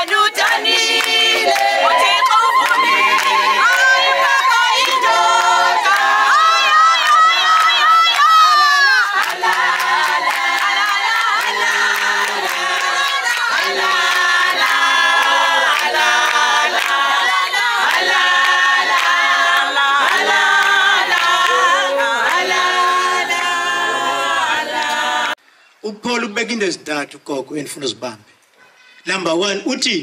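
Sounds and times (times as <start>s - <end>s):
a cappella group singing: 0.0s - 25.4s.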